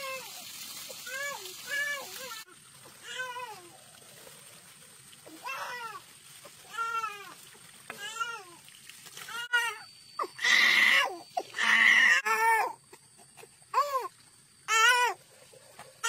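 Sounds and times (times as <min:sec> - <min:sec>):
baby crying: 0:09.4 - 0:12.8.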